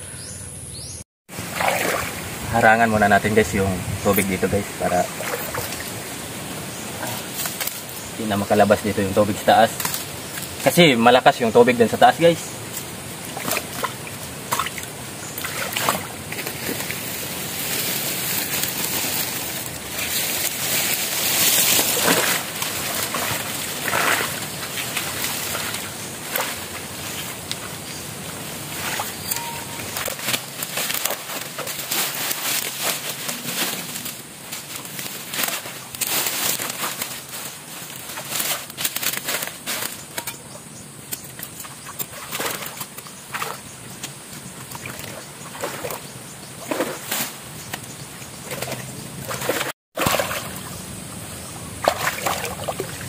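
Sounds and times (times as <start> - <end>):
water splashing from wading: 1.3 - 2.5, 4.9 - 6.3, 13.2 - 17.9, 20.8 - 27.8, 41.4 - 43.6, 48.4 - 50.8, 51.8 - 53.0
flowing water rushing: 1.3 - 7.4, 12.6 - 30.6, 49.2 - 53.0.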